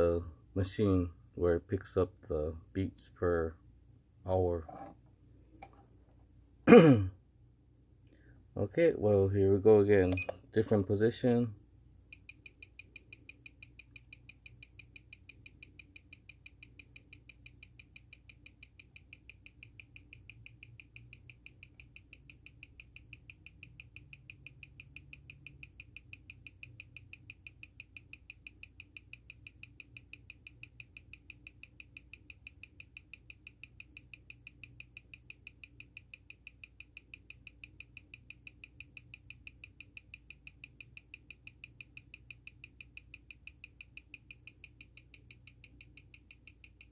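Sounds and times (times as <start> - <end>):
watch ticking: 12.1 - 46.9.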